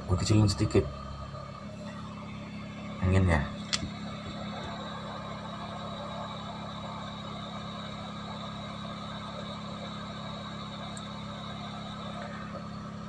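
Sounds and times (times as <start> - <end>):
hot-air blower rushing: 0.0 - 13.0.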